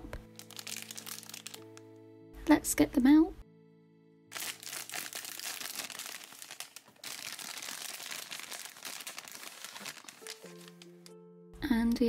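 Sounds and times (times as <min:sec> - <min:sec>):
plastic bag crinkling: 0:00.2 - 0:01.8, 0:04.3 - 0:11.1.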